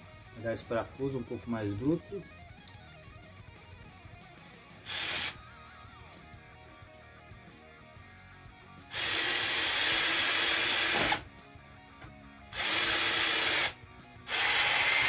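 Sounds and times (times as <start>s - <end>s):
cordless drill driving screw into wood: 4.9s - 5.4s, 8.9s - 11.2s, 12.6s - 15.0s.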